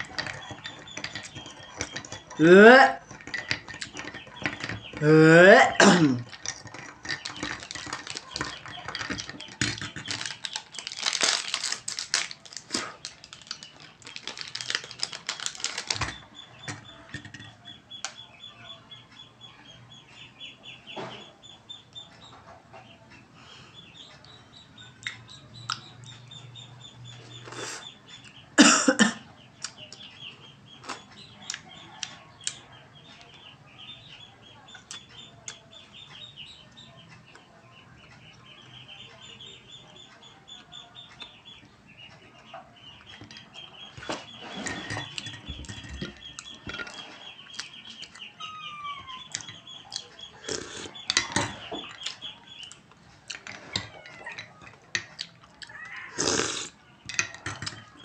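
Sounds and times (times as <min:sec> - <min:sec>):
steady high chirping: 0:00.0 - 0:05.1, 0:06.2 - 0:28.6, 0:29.4 - 0:56.0
paper liner rustling: 0:10.1 - 0:16.1
chewing and mouth clicks: 0:49.3 - 0:56.7.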